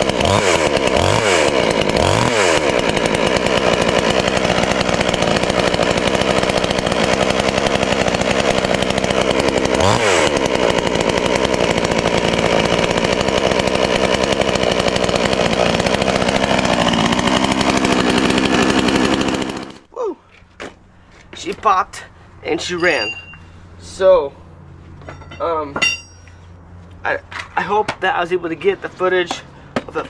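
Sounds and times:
chainsaw engine running: 0.0 - 19.9.

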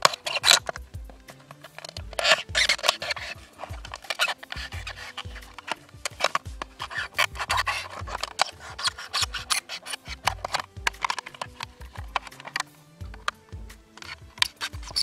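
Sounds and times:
knife sawing plastic bottle: 0.0 - 15.0
dull low thumps: 0.6 - 1.3, 13.0 - 13.9.

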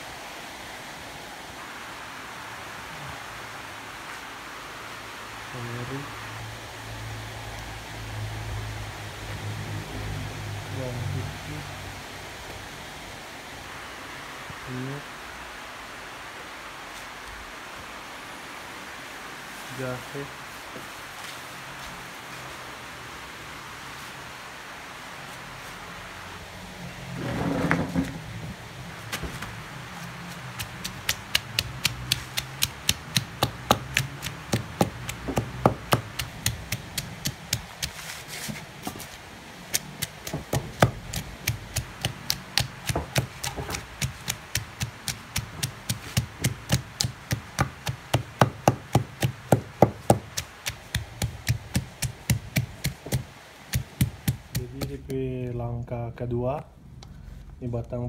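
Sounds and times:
pestle pounding in stone mortar: 30.3 - 38.0, 39.7 - 55.2.

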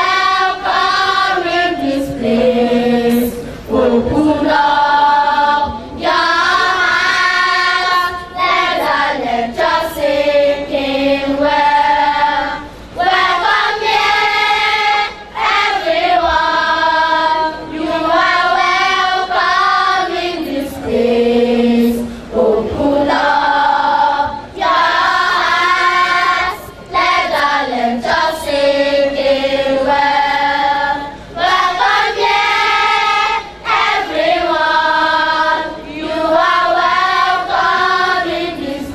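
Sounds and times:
choir singing: 0.0 - 38.9.

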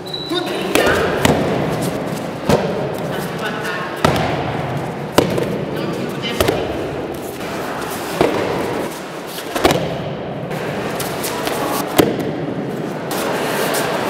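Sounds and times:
hall ambience: 0.0 - 14.0
body slapping foam mats: 0.7 - 3.2, 4.0 - 5.7, 6.3 - 10.2.

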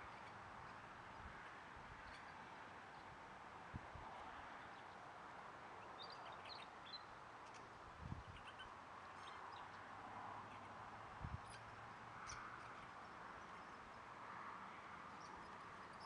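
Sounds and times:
small birds chirping: 5.8 - 14.1, 15.0 - 16.0.

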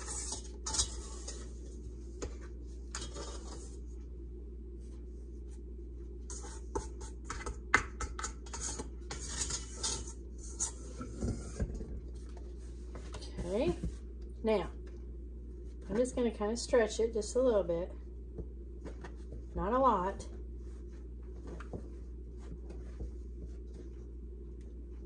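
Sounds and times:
dough scraping metal bowl: 0.0 - 1.7, 2.9 - 3.8, 6.3 - 12.0.

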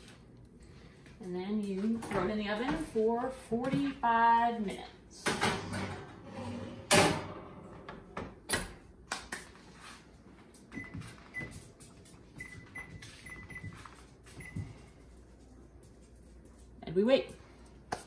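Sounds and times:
microwave keypad beeps: 12.4 - 13.8, 14.4 - 14.6.

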